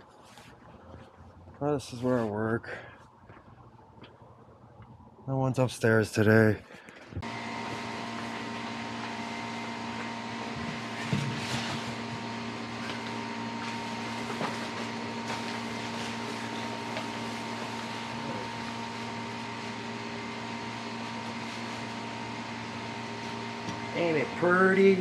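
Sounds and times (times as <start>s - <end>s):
machinery humming: 7.1s - 25.0s.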